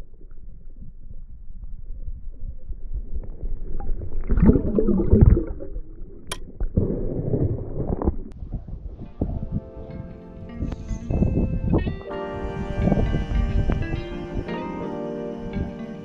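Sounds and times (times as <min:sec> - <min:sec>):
muffled underwater water sloshing: 0:00.0 - 0:09.8.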